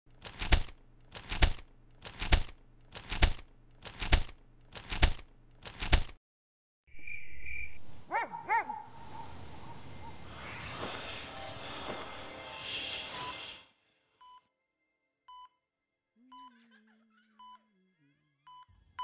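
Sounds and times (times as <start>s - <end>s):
faint night ambience: 6.9s - 18.4s
dog-like barks: 8.1s - 10.2s
steady high tone: 10.3s - 13.7s.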